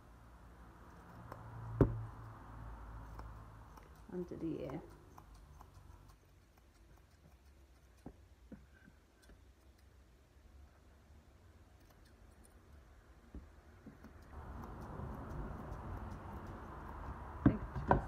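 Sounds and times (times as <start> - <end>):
low room hum: 0.0 - 18.0
scissors snipping hair: 3.0 - 8.0.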